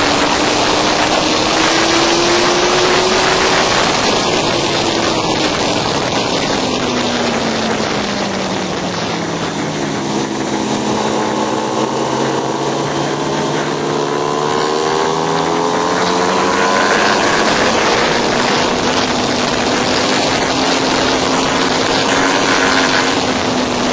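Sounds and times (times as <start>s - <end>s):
motorcycle engine revving: 0.0s - 23.9s
wind rush: 0.0s - 23.9s.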